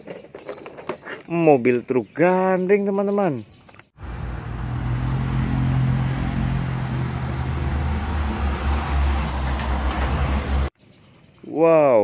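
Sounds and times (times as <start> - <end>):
tyre and road noise: 3.9 - 10.7
truck engine running: 4.0 - 10.7.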